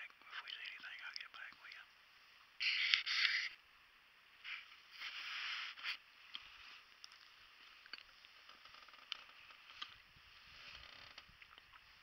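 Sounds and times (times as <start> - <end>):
faint rustling: 4.4 - 12.0
wooden clicks and creaks: 7.0 - 10.0, 10.6 - 11.8.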